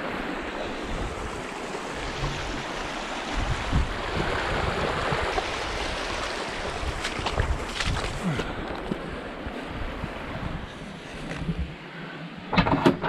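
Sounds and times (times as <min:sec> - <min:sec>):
creek running over stones: 0:00.2 - 0:09.2.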